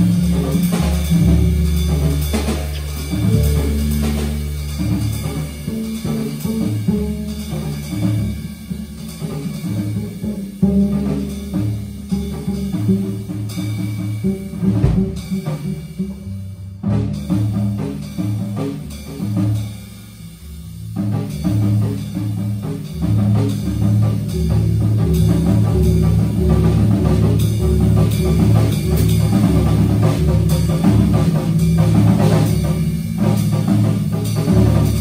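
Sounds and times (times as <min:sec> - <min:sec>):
double bass: 0:00.0 - 0:35.0
drum kit: 0:00.0 - 0:35.0.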